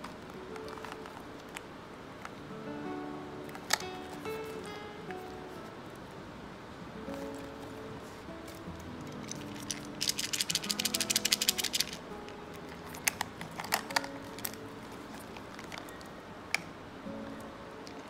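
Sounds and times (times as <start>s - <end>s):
soft background music: 0.0s - 18.0s
small tin rattling: 9.0s - 12.0s.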